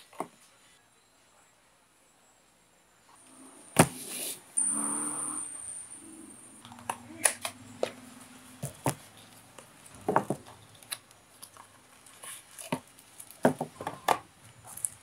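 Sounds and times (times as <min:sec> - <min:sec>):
cardboard packaging rustling: 0:08.6 - 0:15.0.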